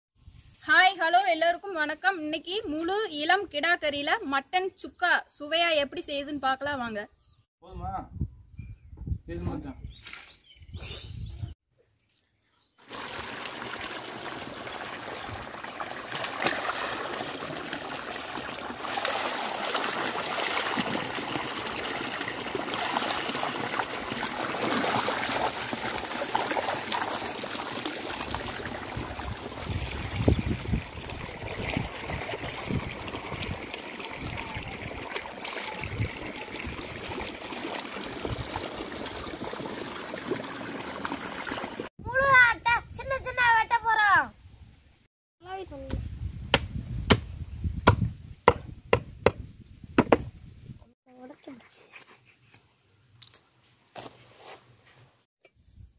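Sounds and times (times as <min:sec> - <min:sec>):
water gushing into stone tank: 0:12.8 - 0:41.9.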